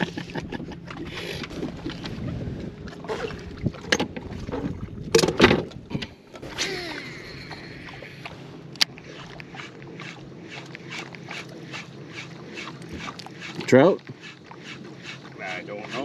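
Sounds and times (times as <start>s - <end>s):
knocks and clatter on boat: 0.0s - 6.6s, 10.6s - 16.0s
low steady hum: 0.0s - 16.0s.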